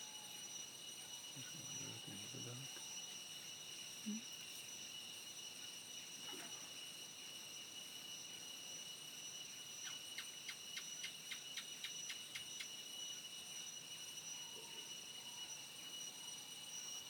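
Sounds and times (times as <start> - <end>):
insects chorus: 0.0 - 17.0.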